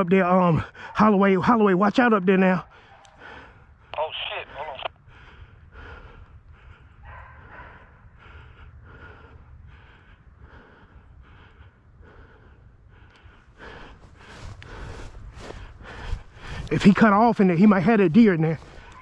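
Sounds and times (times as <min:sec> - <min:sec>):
wind rumble on microphone: 0:04.9 - 0:16.7
dog barking: 0:07.0 - 0:08.0.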